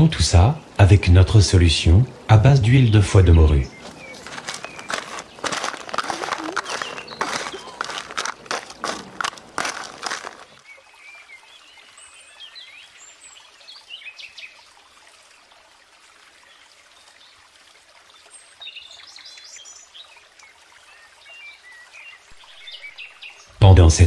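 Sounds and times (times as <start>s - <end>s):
faint outdoor hiss: 0.0s - 5.5s
small birds chirping: 2.8s - 14.7s.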